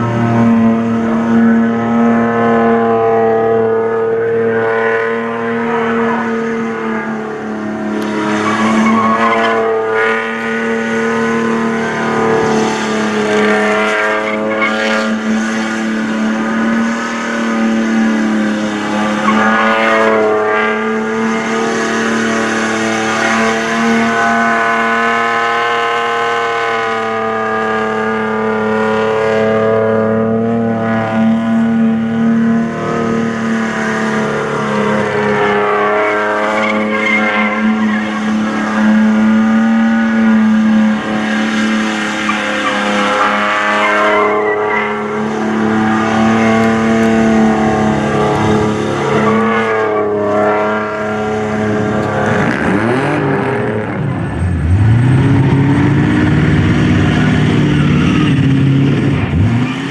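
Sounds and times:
engine revving high: 0.0 - 59.9
tyres squealing: 8.1 - 15.4, 34.0 - 56.0.

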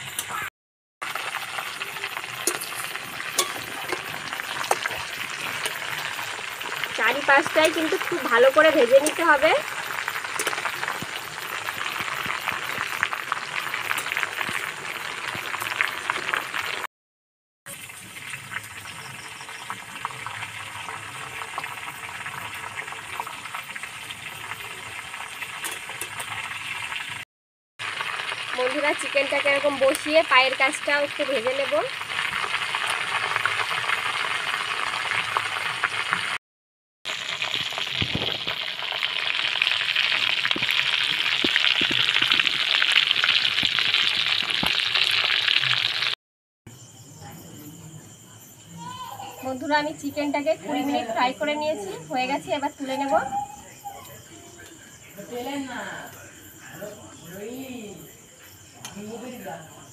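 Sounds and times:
chicken deep-frying in oil: 0.0 - 16.9, 17.7 - 27.2, 27.8 - 36.4, 37.1 - 46.2.

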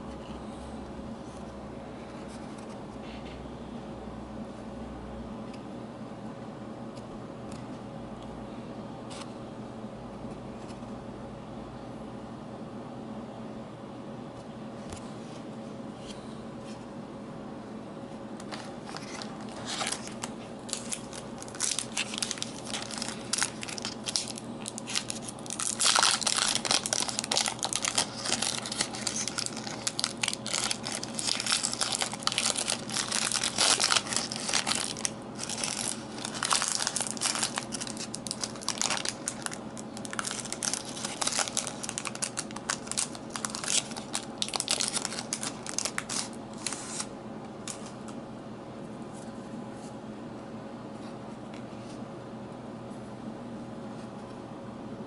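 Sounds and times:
foil wrapper crinkling: 18.4 - 47.1.

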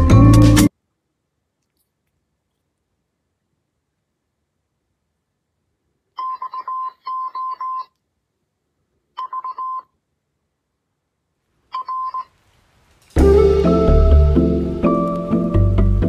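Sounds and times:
electronic beeps: 11.8 - 12.3.

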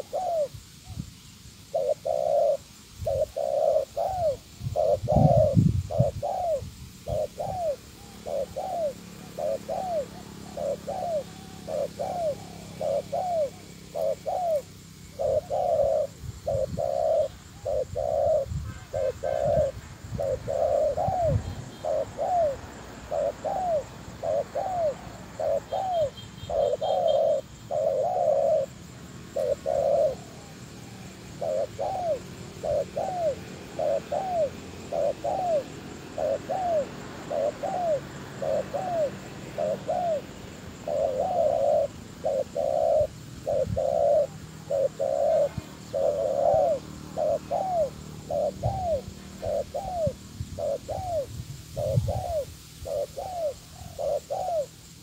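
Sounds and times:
dove cooing: 0.0 - 55.0.

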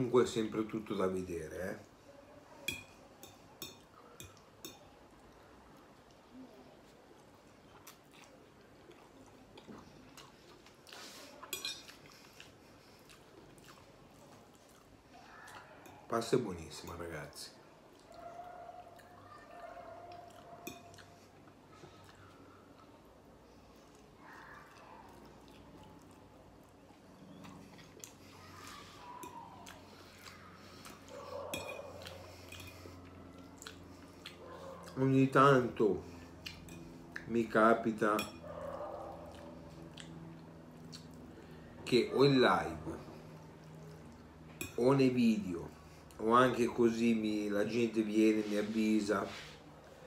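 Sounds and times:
fork clinking against a plate: 2.7 - 4.9, 11.4 - 12.0, 20.6 - 21.1, 31.3 - 32.9, 36.5 - 37.0, 38.1 - 38.6
fork clinking on plate: 11.5 - 11.9.

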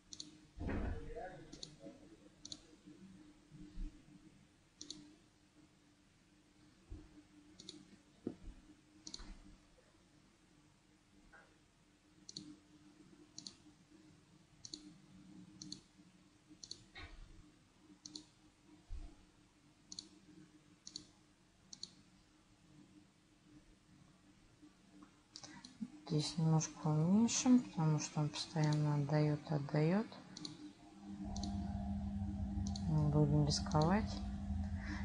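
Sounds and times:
faint low hum: 0.0 - 35.0
mouse button clicking: 31.3 - 31.6.

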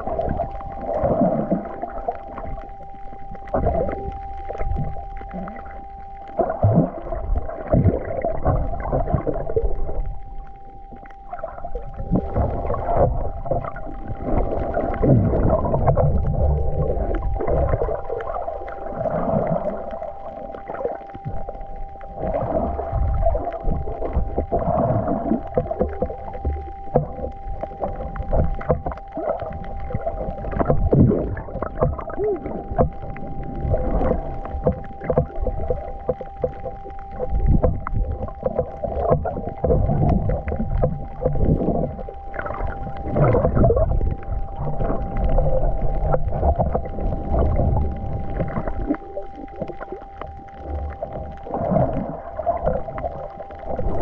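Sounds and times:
faint hum: 0.0 - 54.0
water sloshing and gurgling: 0.0 - 54.0.

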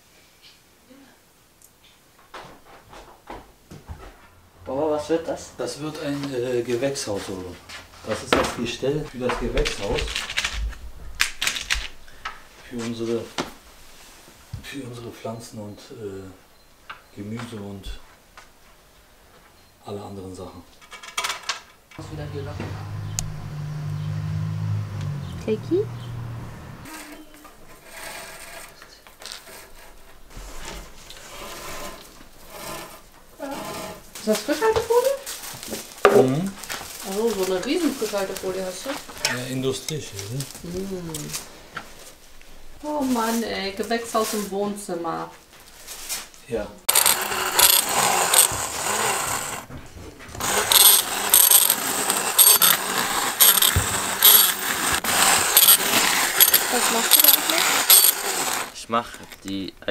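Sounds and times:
eggshells crunching and rattling: 46.9 - 49.6, 50.4 - 59.4
cord scraping against metal rods: 46.9 - 49.7, 50.3 - 59.4
stick blender motor whirring: 46.9 - 49.7, 50.3 - 58.8.

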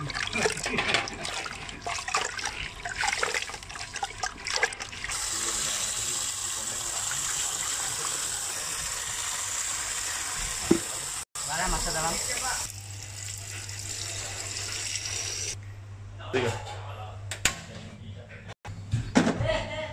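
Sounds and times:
wet hands sloshing meat in water: 0.0 - 5.1
tap water running: 0.0 - 15.6.

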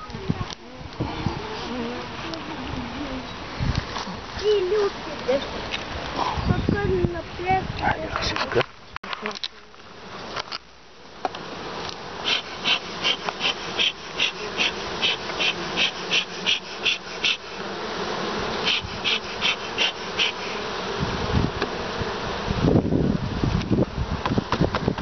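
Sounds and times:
bees buzzing: 0.5 - 6.0, 11.1 - 24.6
bee smoker bellows puffing: 11.4 - 25.0.

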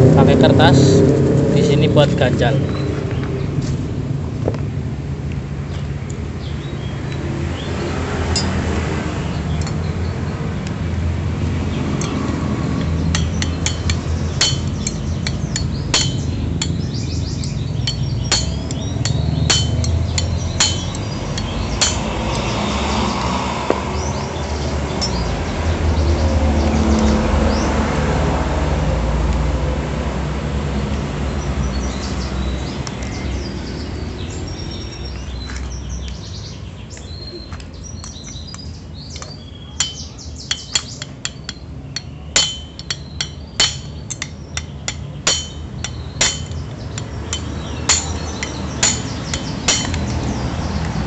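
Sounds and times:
metal tools clinking: 8.3 - 8.6, 9.6 - 9.9, 12.0 - 22.5, 39.2 - 50.3.

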